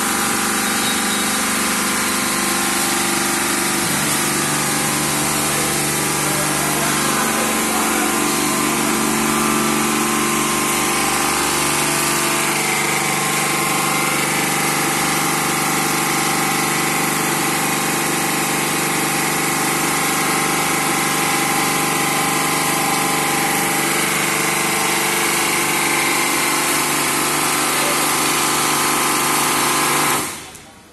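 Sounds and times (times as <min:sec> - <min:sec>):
high-pressure water jets hissing: 0:00.0 - 0:17.2
machine hum: 0:00.0 - 0:30.7.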